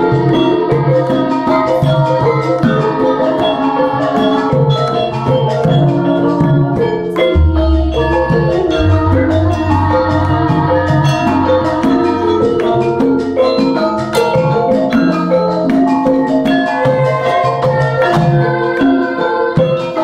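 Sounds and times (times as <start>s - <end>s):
hand drums: 0.0s - 20.0s
metallophones ringing: 0.0s - 20.0s
deep gong strokes: 7.4s - 11.8s.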